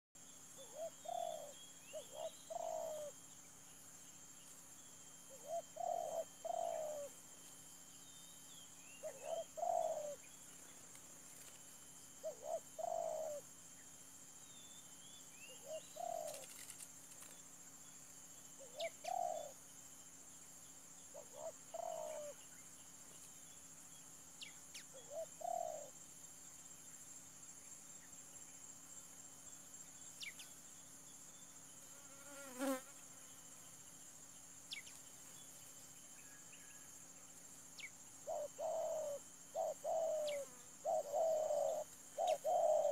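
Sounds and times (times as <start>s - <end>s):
high insect drone: 0.2s - 42.9s
faint small bird chirps: 0.3s - 10.8s, 12.2s - 19.8s, 20.6s - 26.0s, 29.8s - 32.8s, 34.6s - 36.9s, 37.7s - 42.9s
dove cooing: 0.6s - 3.2s, 5.3s - 7.2s, 9.0s - 10.3s, 12.2s - 13.4s, 15.5s - 16.7s, 18.6s - 19.6s, 21.1s - 22.4s, 24.9s - 26.0s, 38.2s - 42.9s.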